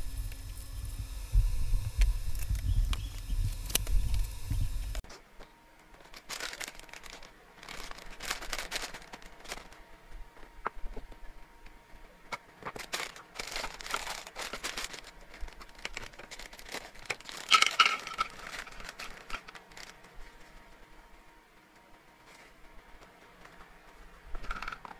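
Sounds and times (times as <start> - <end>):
plastic bag crinkling: 6.0 - 9.8, 12.7 - 20.1
pellets rattling into plastic tub: 6.1 - 9.8, 12.8 - 20.0.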